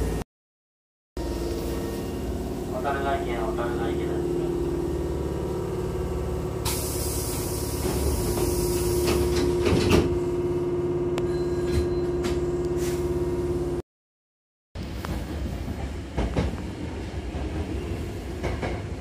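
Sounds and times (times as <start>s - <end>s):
air hiss from door engine: 6.6s - 9.2s
sliding doors thudding shut: 7.8s - 10.2s.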